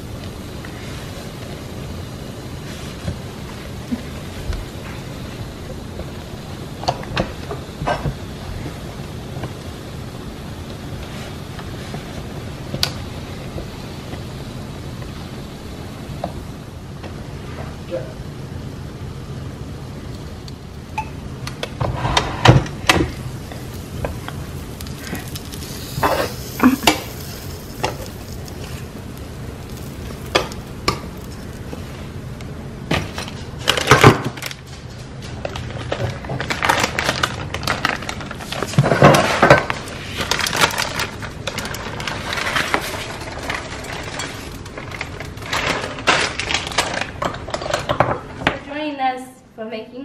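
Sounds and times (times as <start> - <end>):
faint hiss: 21.8 - 32.6.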